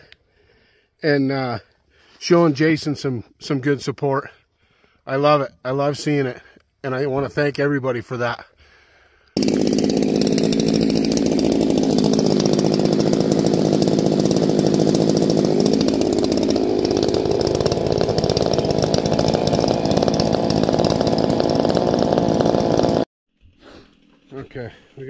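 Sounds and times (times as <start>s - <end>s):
two-stroke chainsaw running: 9.4s - 23.1s.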